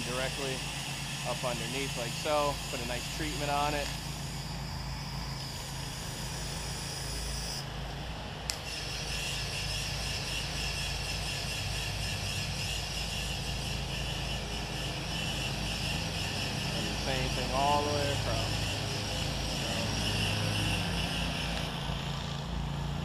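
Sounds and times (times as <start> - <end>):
motor running steadily: 0.0 - 23.0.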